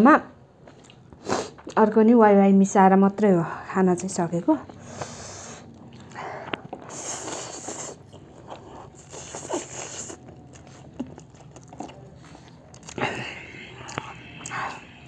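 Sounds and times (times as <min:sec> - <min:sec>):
chewing: 0:04.6 - 0:15.0
slurping noodles: 0:06.8 - 0:10.9.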